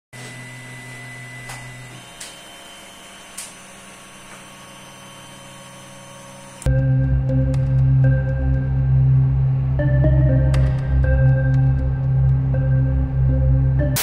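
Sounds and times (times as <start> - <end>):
ambient music: 6.7 - 14.0.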